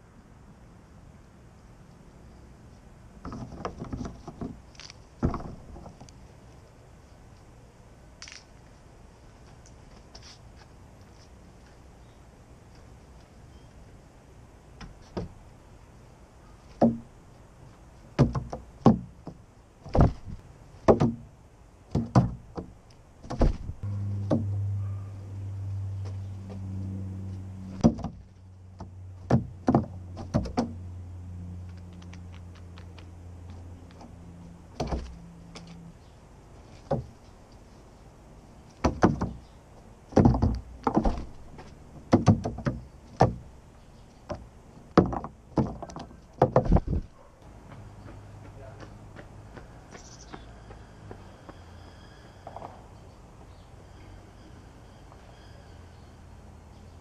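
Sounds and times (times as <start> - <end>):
steady low hum: 10.7 - 52.2.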